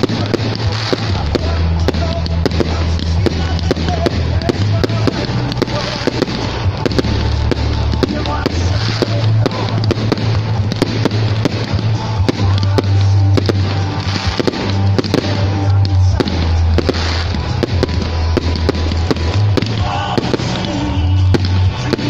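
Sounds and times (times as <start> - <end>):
fireworks bangs and crackles: 0.0 - 22.0
music with deep bass: 0.0 - 22.0.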